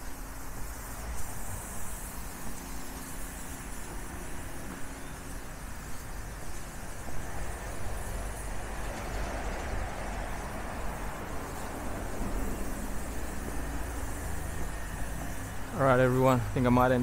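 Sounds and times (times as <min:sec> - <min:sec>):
road traffic rumble: 0:00.0 - 0:17.0
vehicle passing: 0:07.2 - 0:17.0.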